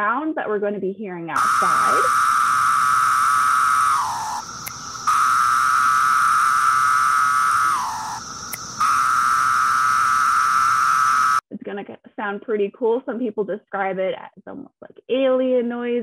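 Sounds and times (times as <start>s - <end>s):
cicadas buzzing: 1.4s - 11.4s.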